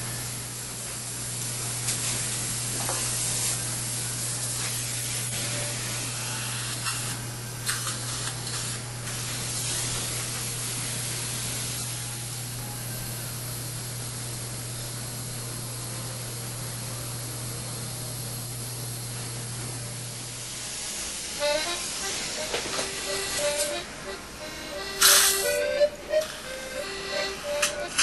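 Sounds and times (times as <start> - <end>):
low equipment hum: 0.0 - 28.0
dental suction hissing: 21.4 - 23.8, 24.4 - 28.0.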